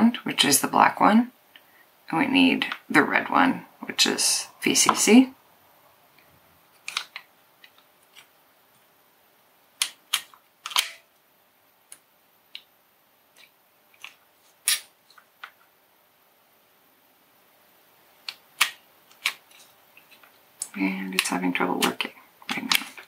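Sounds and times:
wire stripper clicking: 0:09.8 - 0:11.0.

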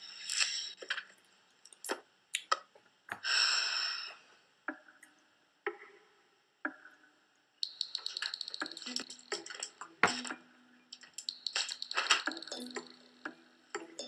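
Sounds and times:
laptop keyboard typing: 0:07.6 - 0:10.4, 0:11.0 - 0:14.0
ringing plinks: 0:07.6 - 0:14.0.

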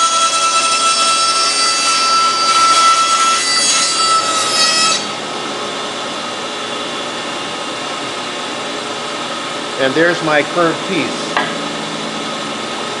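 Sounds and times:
bandsaw cutting wood: 0:00.0 - 0:05.2.

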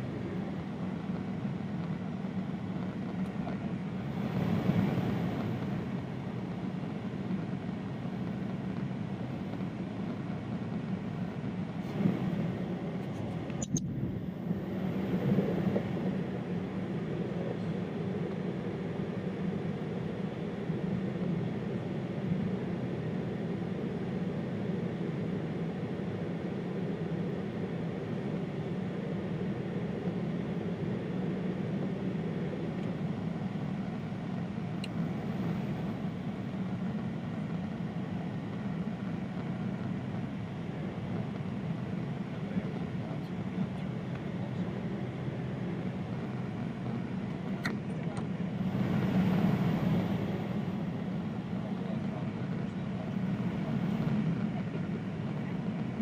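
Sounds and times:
airliner cabin engine rush: 0:00.0 - 0:56.0
sharp click: 0:13.5 - 0:13.9.

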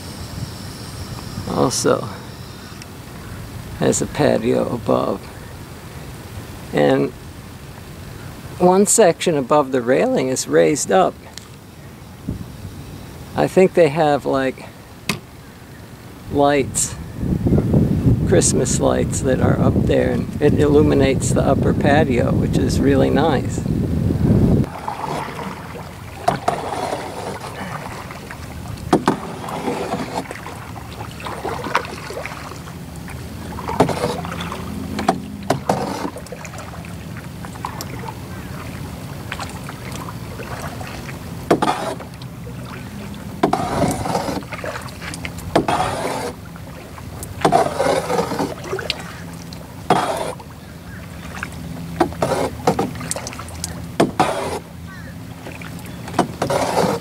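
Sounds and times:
paddle splashing in water: 0:24.6 - 0:57.0
sharp knocks on canoe: 0:28.8 - 0:30.5, 0:33.6 - 0:36.4, 0:52.0 - 0:53.2, 0:54.0 - 0:54.6.

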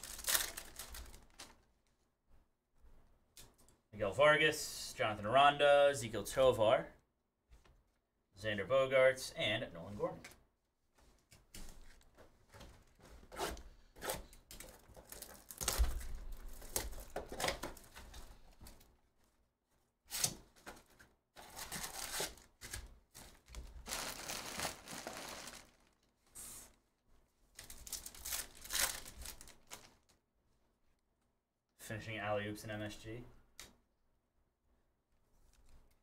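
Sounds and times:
wrapper tearing and crinkling: 0:00.0 - 0:01.6, 0:14.9 - 0:17.2, 0:21.4 - 0:26.1, 0:27.6 - 0:30.1
cardboard tearing: 0:21.4 - 0:22.9, 0:23.8 - 0:25.8.

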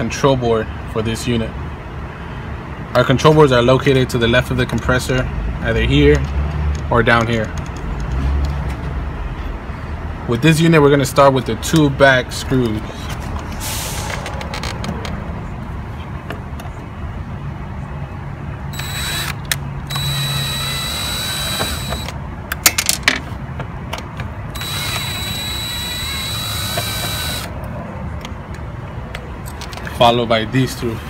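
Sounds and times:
power screwdriver running: 0:18.7 - 0:22.2, 0:24.6 - 0:27.5.

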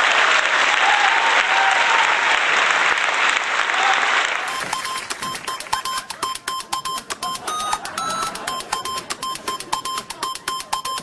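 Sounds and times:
audience applause: 0:00.0 - 0:05.8
short electronic beeps: 0:04.5 - 0:11.0.

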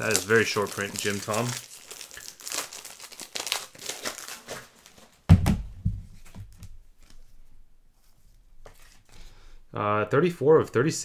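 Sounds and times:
cards and plastic wrappers rustling: 0:00.0 - 0:05.2
loud thump on table: 0:05.3 - 0:06.1.

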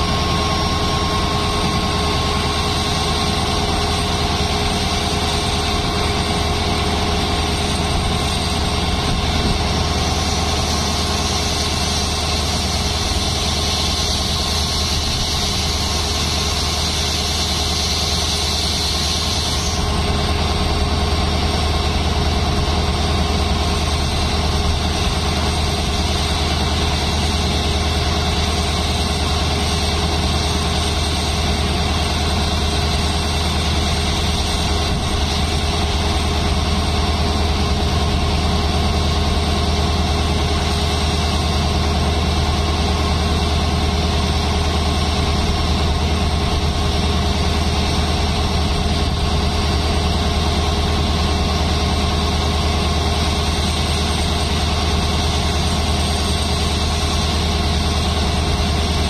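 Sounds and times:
diesel locomotive engine idling: 0:00.0 - 0:59.0.

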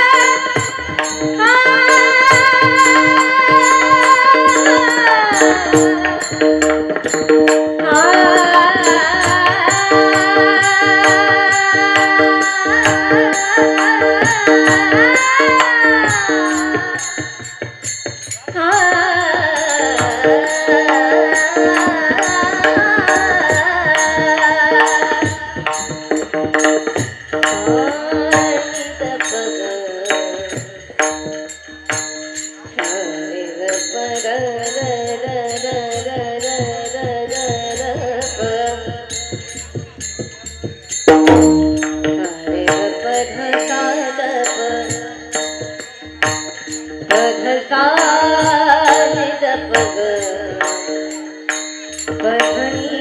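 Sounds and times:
drum: 0:00.0 - 0:29.4, 0:34.8 - 0:43.6
woman singing into microphone: 0:00.0 - 0:32.0, 0:32.6 - 0:39.8, 0:41.2 - 0:53.0
hand cymbals: 0:00.0 - 0:53.0.

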